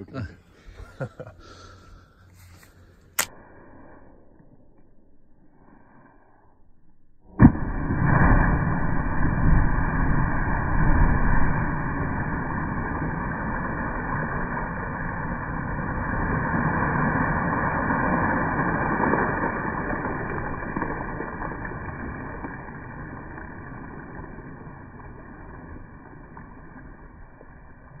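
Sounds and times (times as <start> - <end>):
water splashing and churning: 7.3 - 28.0.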